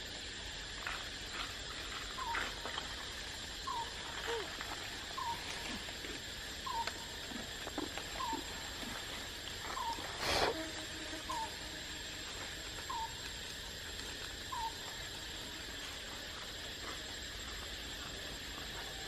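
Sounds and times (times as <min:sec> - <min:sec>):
background hiss: 0:00.0 - 0:19.0.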